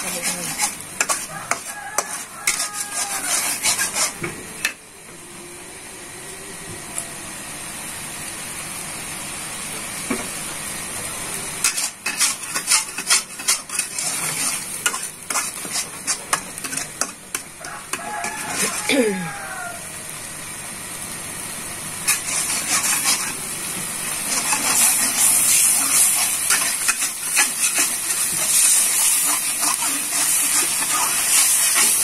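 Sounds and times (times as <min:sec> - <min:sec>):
paste sizzling in hot oil: 0:00.0 - 0:04.7, 0:10.7 - 0:32.0
spatula scraping a wok: 0:00.0 - 0:04.8, 0:11.6 - 0:19.5, 0:22.0 - 0:32.0.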